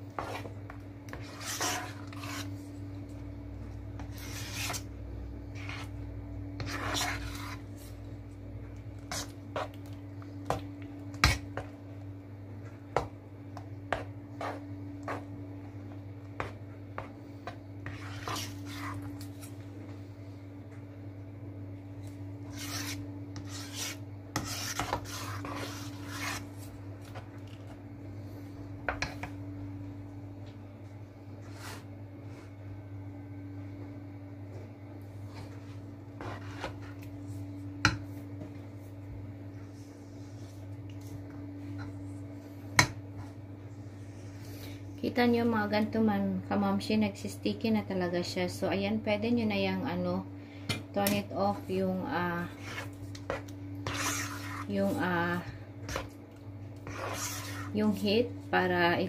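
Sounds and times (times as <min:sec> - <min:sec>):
steady low hum: 0:00.0 - 0:59.0
spatula scraping a pan: 0:00.2 - 0:00.5, 0:01.1 - 0:02.6, 0:04.0 - 0:04.9, 0:05.6 - 0:06.0, 0:06.6 - 0:08.0, 0:09.1 - 0:09.8, 0:13.9 - 0:15.3, 0:16.4 - 0:19.5, 0:22.4 - 0:27.2, 0:35.4 - 0:37.1, 0:52.4 - 0:56.2, 0:56.8 - 0:58.2.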